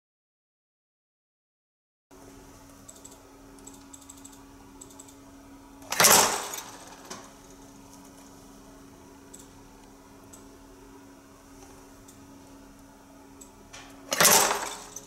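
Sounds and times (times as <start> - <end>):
low machine hum: 2.1 - 15.0
crimping press clunk: 5.9 - 7.3, 13.7 - 15.0.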